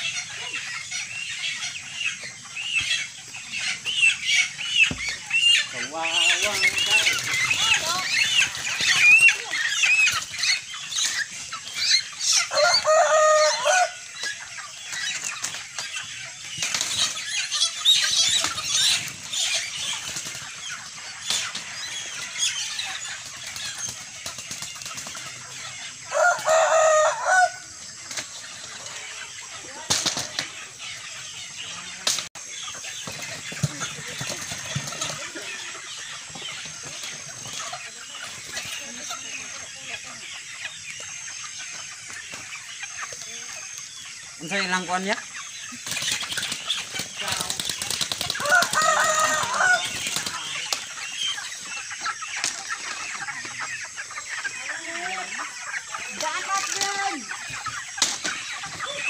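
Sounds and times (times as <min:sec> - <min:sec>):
chickens squawking: 0:00.0 - 0:59.0
drawn-out chicken cries: 0:00.0 - 0:59.0
wings flapping: 0:06.1 - 0:11.5, 0:14.2 - 0:25.5, 0:29.8 - 0:30.7, 0:32.0 - 0:35.8, 0:45.7 - 0:51.6.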